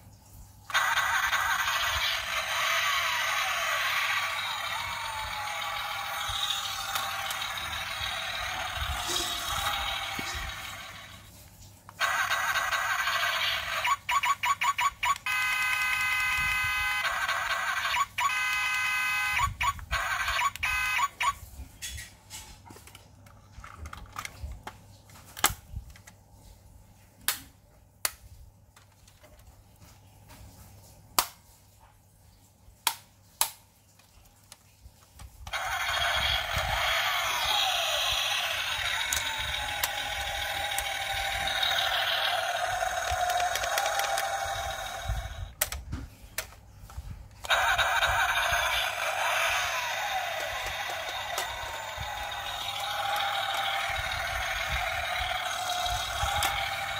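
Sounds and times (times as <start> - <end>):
electric motor whirring: 0.7 - 11.2, 12.0 - 14.6, 15.2 - 21.3, 35.5 - 45.5, 47.5 - 56.9
toy electronic tones: 0.7 - 11.2, 12.0 - 21.4, 35.5 - 45.6, 47.4 - 56.9
plastic clicks: 32.8 - 56.9.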